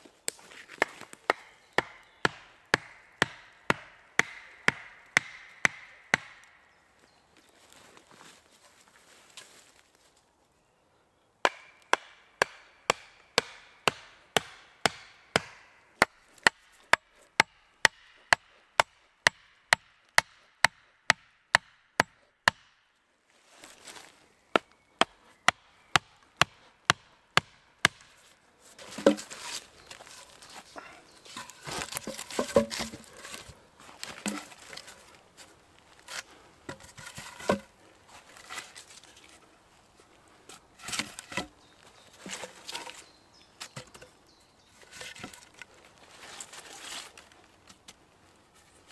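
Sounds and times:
hatchet pounding wooden stakes: 0.8 - 6.6, 11.4 - 22.8, 24.5 - 28.2, 31.4 - 33.5
logs knocking: 28.8 - 29.5, 31.3 - 34.7, 36.7 - 37.7
rustling: 44.8 - 48.9.

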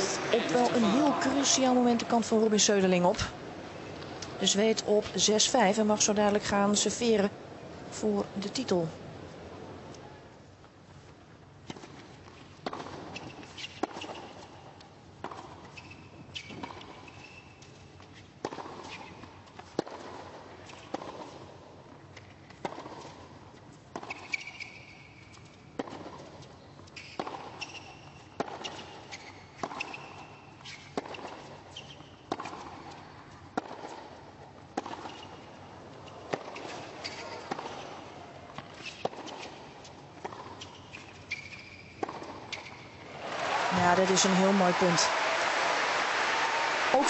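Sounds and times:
tennis ball hit by rackets: 12.6 - 14.4, 18.4 - 21.4, 22.5 - 23.2, 27.0 - 29.0, 30.9 - 33.0, 33.6 - 34.1, 34.7 - 35.4, 36.2 - 39.6, 40.2 - 43.2.

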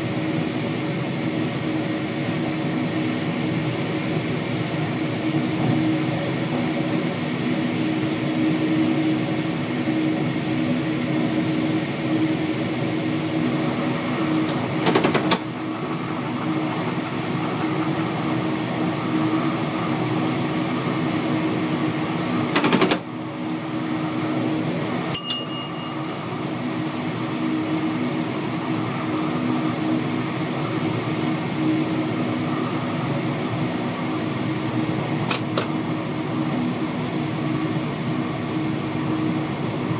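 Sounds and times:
train mechanical drone and hum: 0.0 - 39.9
brief high beep: 25.2 - 26.3.

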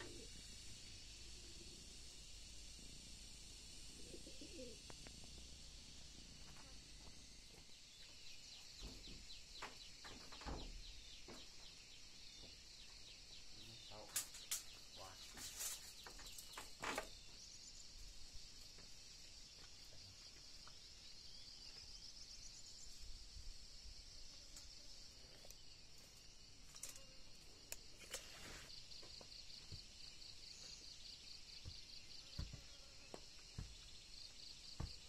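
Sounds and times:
steady high hiss: 0.0 - 11.2, 11.8 - 31.6
faint bird calls: 3.8 - 5.4.

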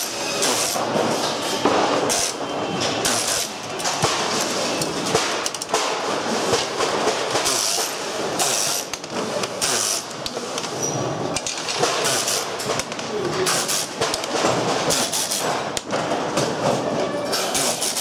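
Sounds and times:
steady workshop din: 0.0 - 18.0
metal and plastic parts knocking: 10.2 - 16.8.

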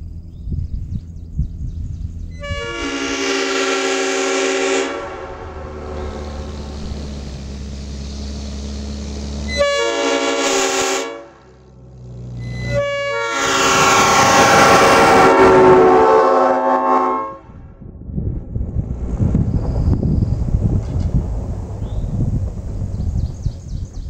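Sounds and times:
truck engine drone: 0.0 - 24.0
air horns sounding a chord: 2.4 - 6.3, 9.5 - 11.6, 12.4 - 17.6.

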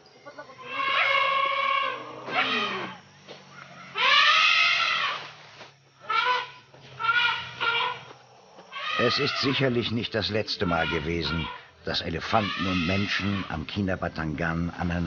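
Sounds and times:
elephant trumpeting: 0.3 - 3.0, 3.7 - 5.3, 6.0 - 8.1, 8.7 - 9.9, 10.6 - 13.6.

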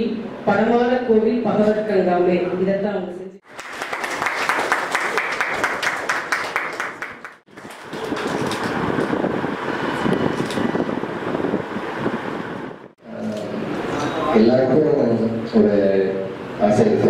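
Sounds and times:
crowd noise in a room: 0.0 - 9.2, 12.9 - 17.0
audience clapping: 3.4 - 9.2.

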